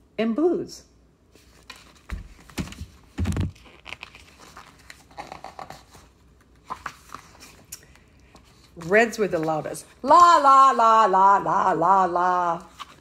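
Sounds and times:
book pages rustling: 1.3 - 10.8, 12.4 - 13.0.

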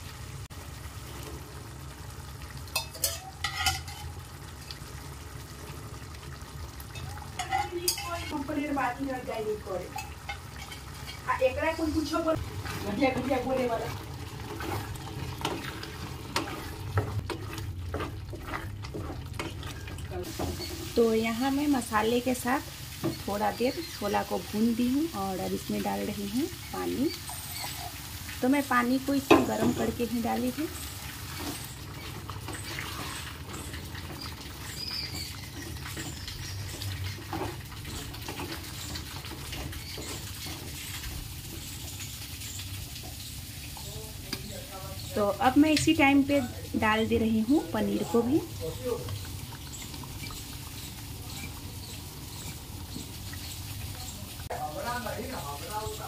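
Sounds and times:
chickpeas frying: 0.0 - 56.0
spatula scraping a pan: 2.7 - 4.2, 6.9 - 8.8, 9.7 - 24.7, 26.6 - 28.4, 29.1 - 46.0, 47.8 - 54.2.

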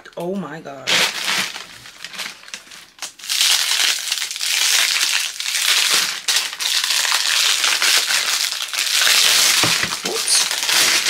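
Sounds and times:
plastic wrapping crinkling: 0.8 - 11.0.

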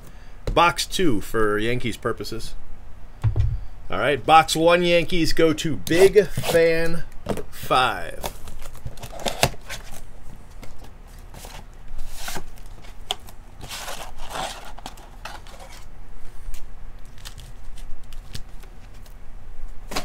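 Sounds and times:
card packaging scraping and rustling: 5.9 - 7.4, 8.2 - 15.9.

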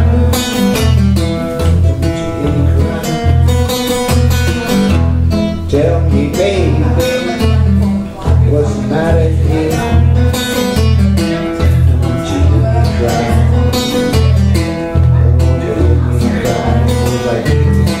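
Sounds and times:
acoustic guitars playing riff: 0.0 - 18.0.

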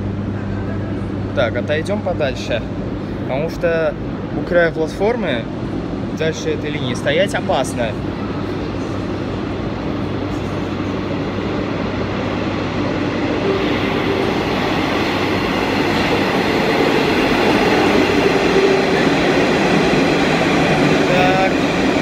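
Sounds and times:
train wheels and motors rumbling: 0.0 - 22.0
faint whine: 7.9 - 19.1.

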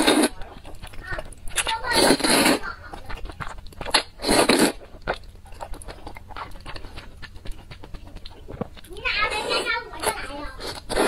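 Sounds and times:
person slurping noodles: 0.0 - 0.4, 1.9 - 2.7, 3.9 - 4.9, 10.6 - 11.0
wet chewing: 0.0 - 11.0.

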